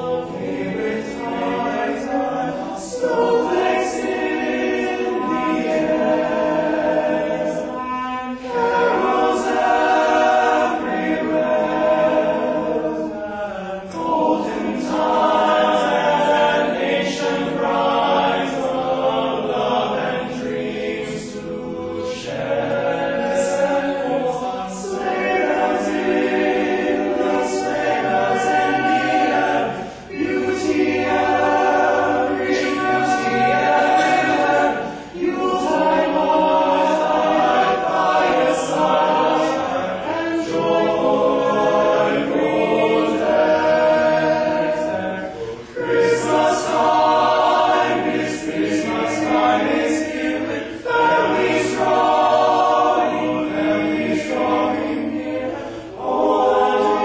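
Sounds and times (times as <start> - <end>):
male a cappella group singing: 0.0 - 57.0.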